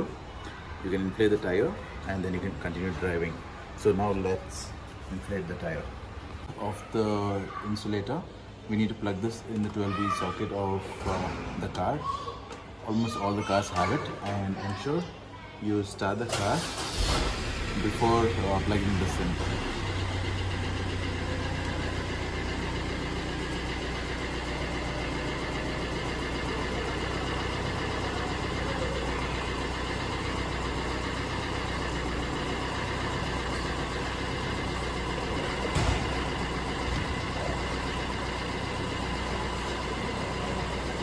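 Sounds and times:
car engine idling: 16.4s - 41.0s.

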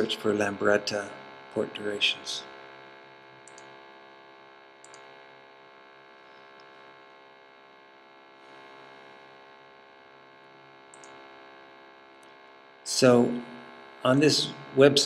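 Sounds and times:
faint electrical hum: 0.0s - 15.0s
mouse click: 3.5s - 3.7s, 4.8s - 5.0s.

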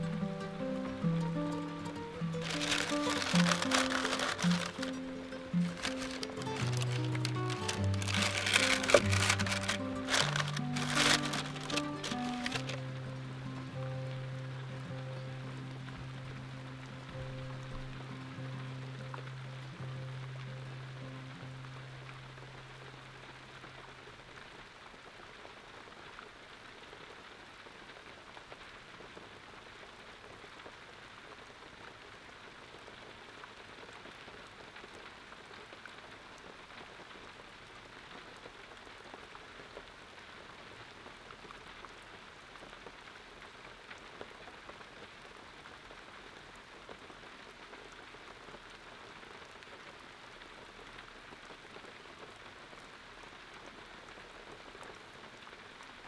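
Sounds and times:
faint rain-like patter and hiss: 0.0s - 56.0s
fine crackles: 1.9s - 12.8s.

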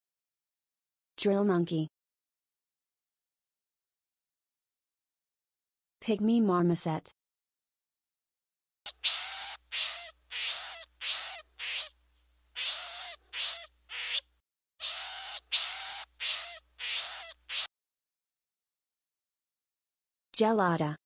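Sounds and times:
marmoset high-pitched calls: 8.9s - 12.0s, 12.6s - 14.2s, 14.8s - 17.7s.

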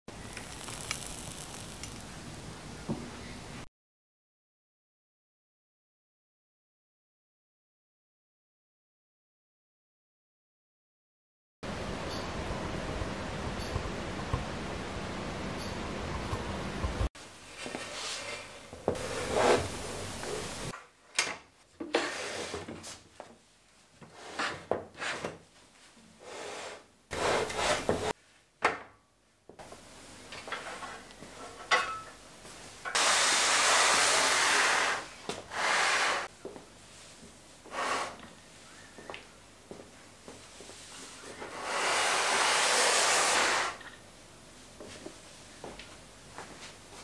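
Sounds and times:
workbench rubbing: 17.6s - 20.7s, 26.3s - 28.2s, 32.9s - 36.3s, 41.3s - 43.8s.

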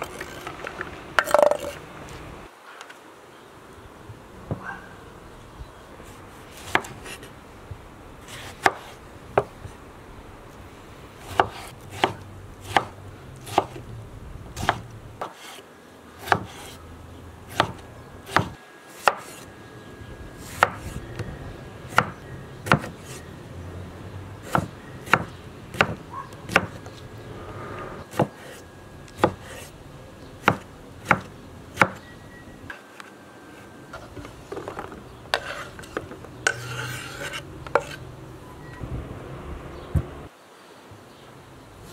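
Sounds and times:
knife chopping on wooden board: 11.3s - 13.8s, 14.6s - 15.6s, 16.2s - 16.8s, 17.5s - 19.4s, 20.5s - 21.0s, 21.9s - 23.2s, 24.4s - 26.8s, 28.1s - 29.7s, 30.4s - 32.0s.

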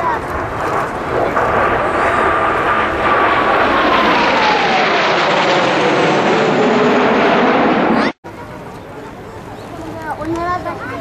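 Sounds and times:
jet engines passing overhead: 0.0s - 11.0s
jet whine falling in pitch: 0.4s - 8.2s.

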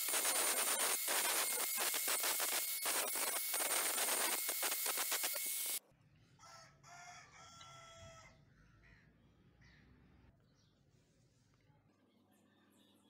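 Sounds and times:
angle grinder grinding steel: 0.0s - 5.8s
rooster crowing: 6.4s - 8.4s.

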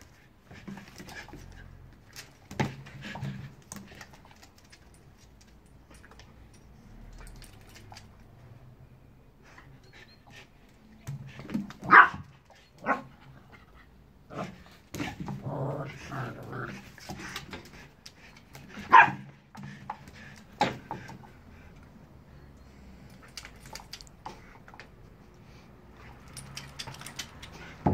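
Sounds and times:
dogs barking: 11.8s - 12.2s, 18.9s - 19.3s
dogs growling: 14.3s - 17.0s.

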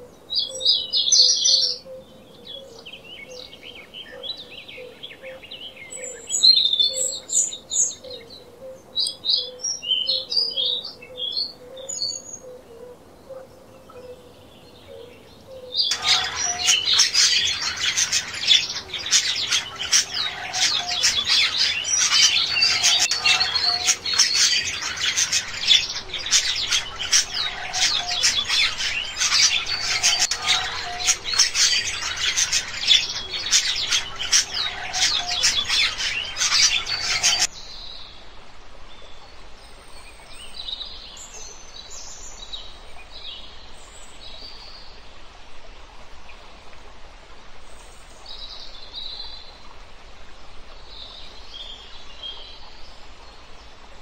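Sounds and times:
scattered bird calls: 0.0s - 37.5s
dense bird chorus: 0.0s - 38.1s
faint background noise: 0.0s - 54.0s.

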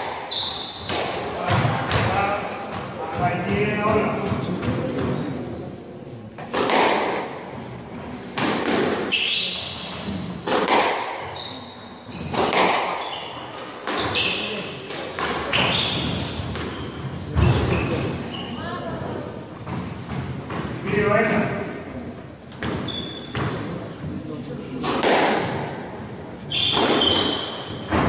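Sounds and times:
shoes squeaking on wooden floor: 0.0s - 0.9s, 11.2s - 20.6s, 22.5s - 23.9s, 26.5s - 28.0s
squash ball cracking off rackets: 6.4s - 7.4s, 8.3s - 9.3s, 10.4s - 11.3s, 12.2s - 16.8s, 24.8s - 25.8s, 26.6s - 28.0s.

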